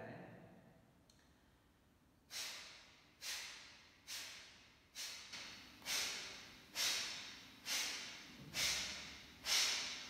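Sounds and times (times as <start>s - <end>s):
man breathing out sharply: 2.3s - 10.0s.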